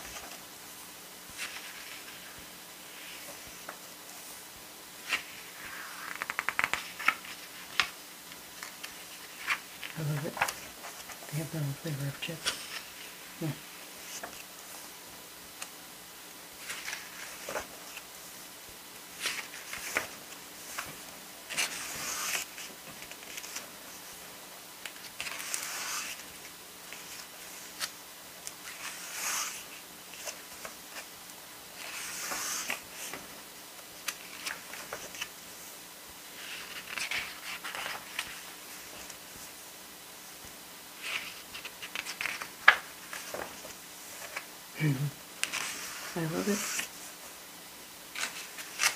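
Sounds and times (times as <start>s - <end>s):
pages being turned: 1.3s - 4.4s, 5.0s - 11.3s, 12.0s - 13.1s, 14.0s - 14.5s, 16.6s - 18.0s, 19.1s - 24.1s, 24.8s - 31.1s, 31.8s - 33.4s, 34.0s - 35.3s, 36.4s - 39.5s, 41.0s - 44.5s, 45.4s - 47.2s, 48.1s - 48.9s.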